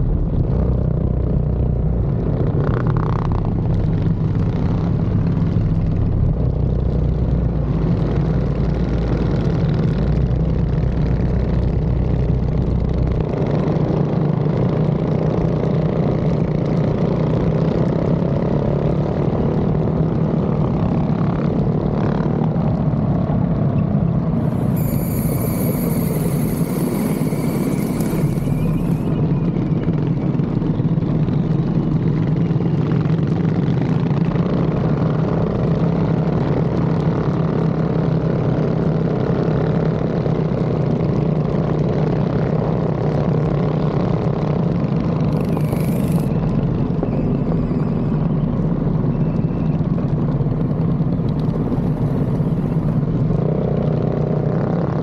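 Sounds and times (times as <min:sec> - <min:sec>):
small engine running steadily: 0:00.0 - 0:55.0.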